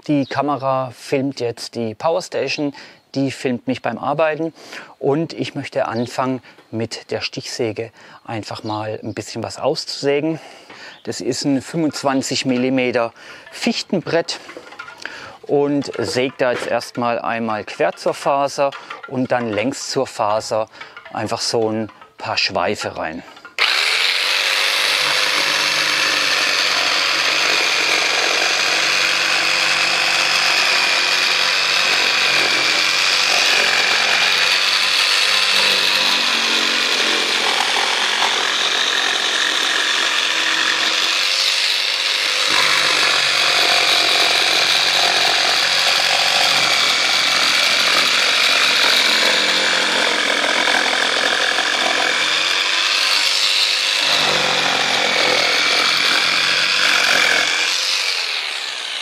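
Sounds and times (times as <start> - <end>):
jigsaw sawing wood: 23.5 - 59.0.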